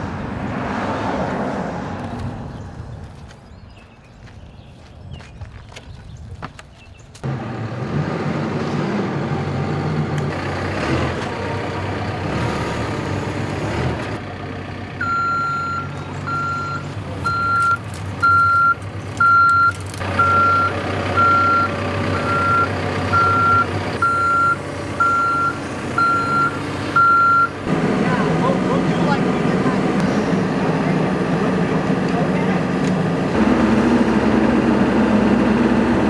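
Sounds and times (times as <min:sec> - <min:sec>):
diesel engine running: 0:07.2 - 0:36.0
reversing alarm beeping: 0:15.0 - 0:27.6.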